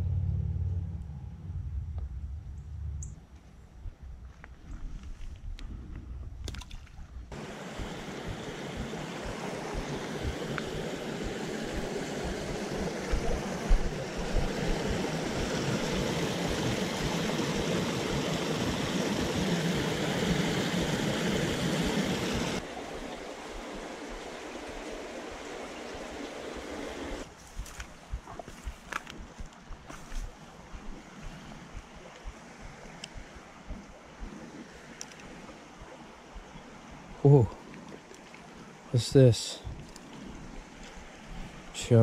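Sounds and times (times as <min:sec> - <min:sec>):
low bump: 0:00.0 - 0:03.9
water rushing over rocks: 0:07.3 - 0:27.3.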